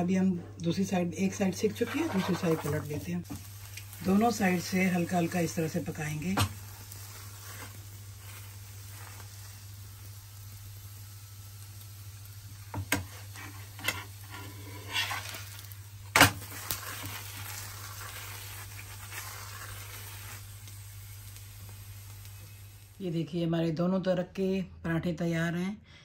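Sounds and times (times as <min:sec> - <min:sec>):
flatbread sizzling on griddle: 0:01.3 - 0:23.1
metal spatula scraping griddle: 0:01.4 - 0:03.1, 0:06.9 - 0:09.4, 0:12.9 - 0:20.4.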